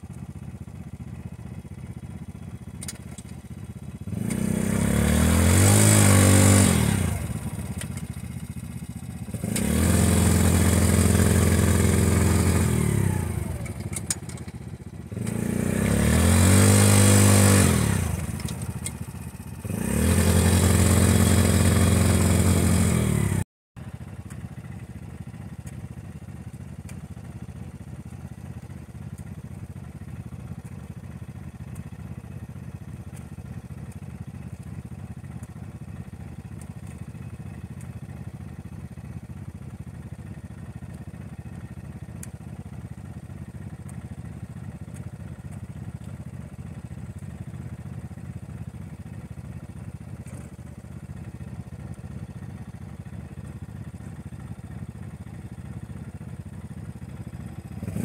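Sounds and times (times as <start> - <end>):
engine idling: 0.0 - 58.0
atv engine revving: 3.9 - 23.5, 50.2 - 50.6, 56.9 - 58.0.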